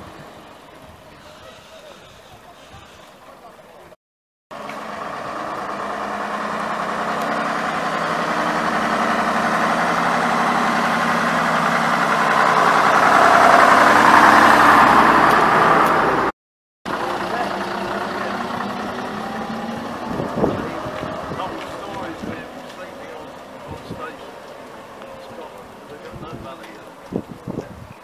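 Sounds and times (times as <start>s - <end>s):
bus diesel engine passing: 0.0s - 3.9s, 4.5s - 16.3s, 16.9s - 27.5s.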